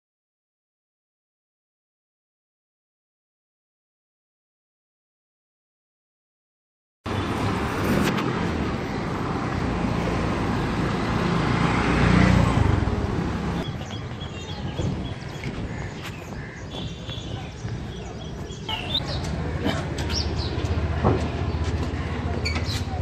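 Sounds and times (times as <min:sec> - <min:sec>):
street traffic with motor rumble: 0:07.1 - 0:23.0.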